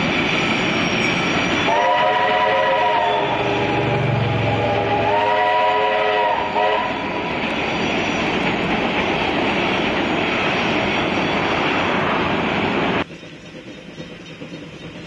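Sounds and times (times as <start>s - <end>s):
steam locomotive whistle: 1.6s - 7.1s
locomotive exhaust and running gear: 12.7s - 15.0s.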